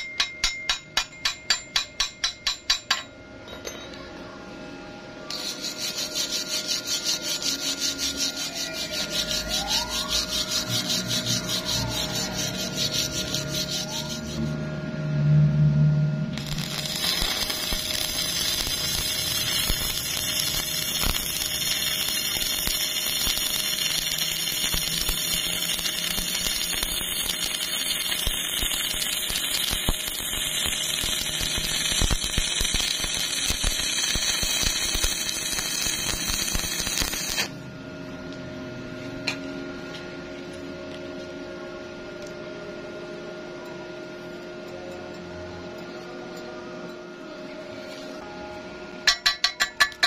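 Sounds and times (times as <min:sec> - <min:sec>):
welding arc crackling: 0:05.3 - 0:14.5, 0:16.3 - 0:37.6.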